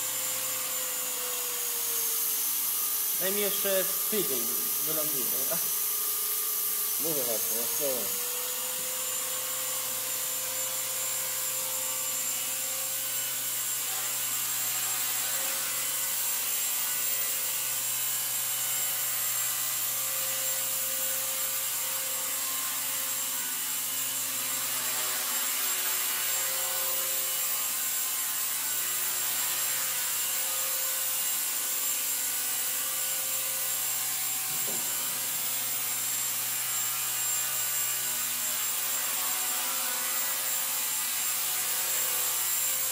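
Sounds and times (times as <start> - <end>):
electric motor whine: 0.0 - 29.4, 30.2 - 42.9
rotor blades hissing: 3.0 - 8.4.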